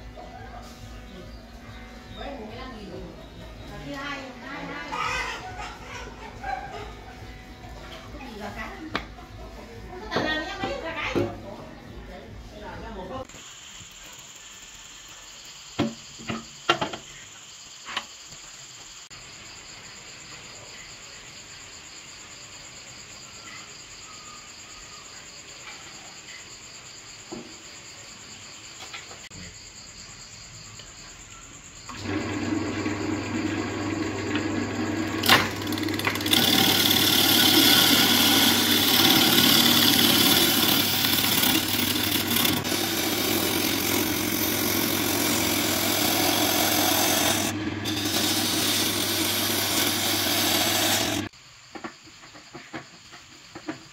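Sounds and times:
lathe motor humming: 0:32.0 - 0:51.3
gouge scraping wood: 0:35.2 - 0:51.3.

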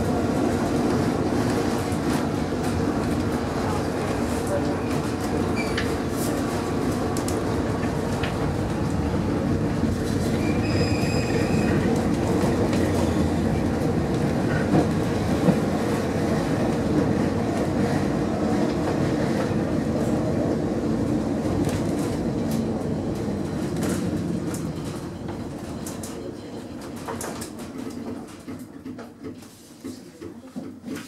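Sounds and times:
tram wheels rumbling on rails: 0:00.0 - 0:30.9
high-pitched wheel squeal: 0:10.4 - 0:11.8.

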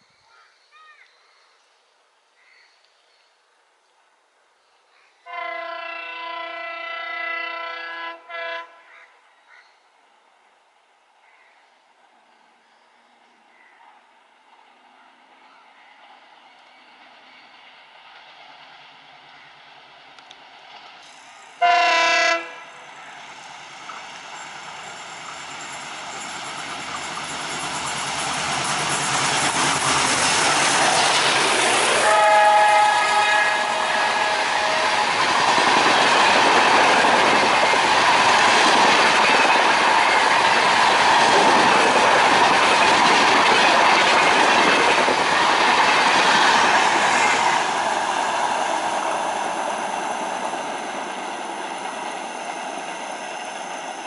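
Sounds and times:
train horn blast: 0:05.3 - 0:09.0, 0:21.6 - 0:22.9, 0:31.7 - 0:35.2
wheels clacking on rails: 0:23.2 - 0:54.0
locomotive engine: 0:23.3 - 0:54.0.

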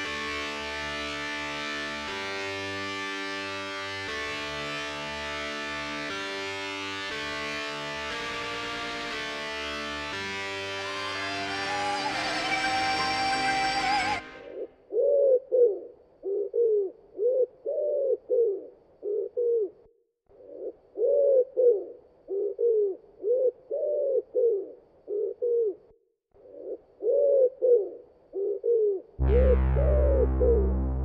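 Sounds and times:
dove cooing: 0:14.9 - 0:19.8, 0:20.4 - 0:25.9, 0:26.5 - 0:29.1.

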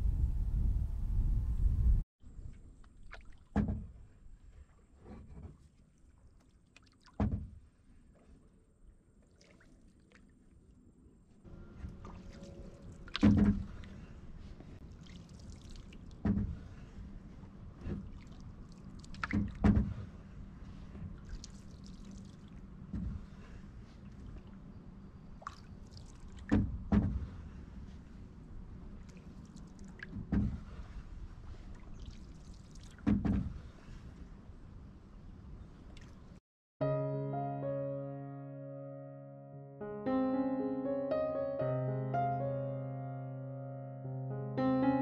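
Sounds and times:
low rumble: 0:00.0 - 0:02.0
paddle strokes in water: 0:11.7 - 0:34.8.

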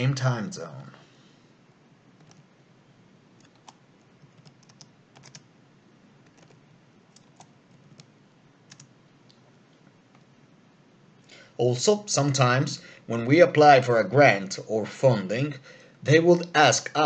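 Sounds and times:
computer keyboard typing: 0:02.2 - 0:02.5, 0:03.4 - 0:05.5, 0:06.2 - 0:08.1, 0:08.7 - 0:08.9.

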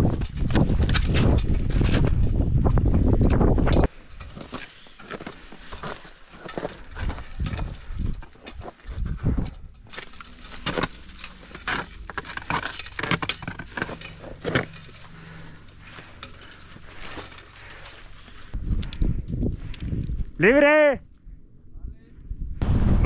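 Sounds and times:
crampons scraping on rock and ice: 0:04.2 - 0:09.2, 0:09.9 - 0:18.3
metal climbing hardware jangling: 0:05.8 - 0:20.1.

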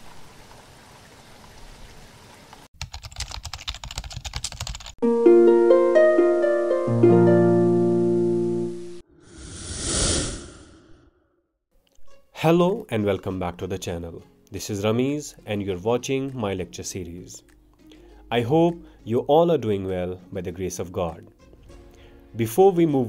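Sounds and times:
rapid clicks: 0:02.8 - 0:05.0
plucked musical notes: 0:05.0 - 0:09.0
whoosh: 0:09.1 - 0:11.4.

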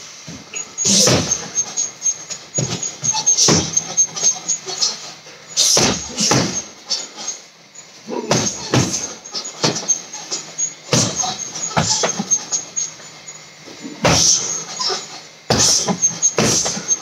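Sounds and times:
punches thudding on heavy bag: 0:00.8 - 0:01.5, 0:02.6 - 0:04.0, 0:05.6 - 0:06.7, 0:08.3 - 0:09.8, 0:10.9 - 0:12.3, 0:14.0 - 0:14.5, 0:15.5 - 0:16.8.

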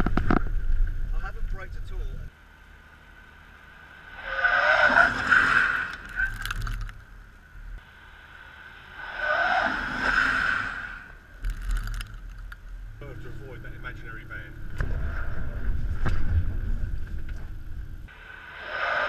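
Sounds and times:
short crackles: 0:05.8 - 0:07.1, 0:11.4 - 0:12.7.

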